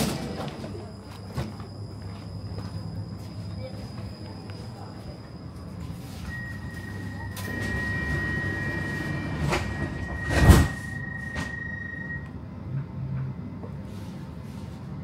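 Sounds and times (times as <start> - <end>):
low train hum: 0.0 - 15.0
high warning tone: 0.4 - 12.4.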